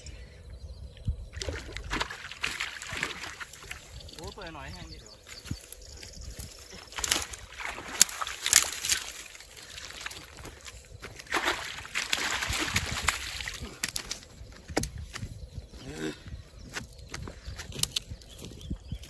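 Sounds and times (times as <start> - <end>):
water sloshing and splashing: 1.3 - 4.5, 5.2 - 14.3.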